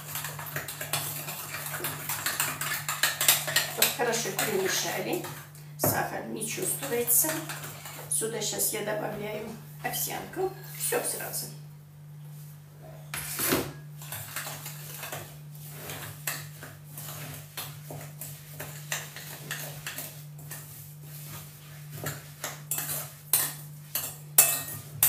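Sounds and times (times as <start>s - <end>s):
metal spoon scraping mixing bowl: 0.0s - 8.1s, 13.2s - 25.0s.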